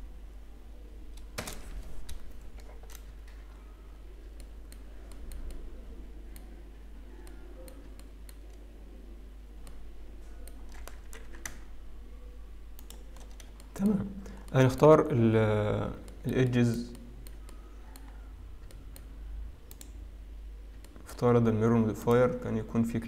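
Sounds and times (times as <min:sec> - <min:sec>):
steady low hum: 0:00.0 - 0:23.0
computer mouse clicks: 0:01.1 - 0:03.7, 0:04.3 - 0:05.7, 0:06.3 - 0:08.6, 0:09.6 - 0:11.7, 0:12.7 - 0:14.6, 0:16.0 - 0:20.0, 0:20.8 - 0:21.2
keyboard key presses: 0:10.4 - 0:11.7.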